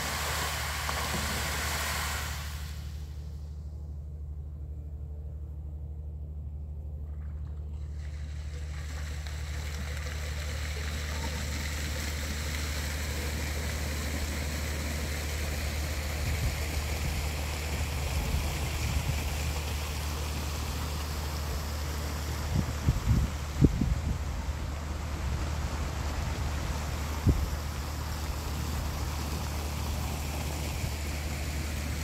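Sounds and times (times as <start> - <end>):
wind noise on microphone: 16.2 - 17.3, 22.4 - 27.8.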